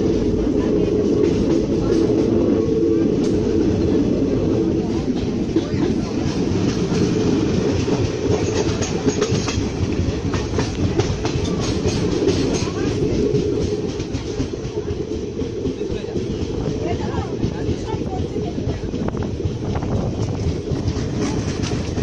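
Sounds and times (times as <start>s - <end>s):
train rumble from aboard: 0.0s - 22.0s
wheels clacking over rail joints: 0.0s - 22.0s.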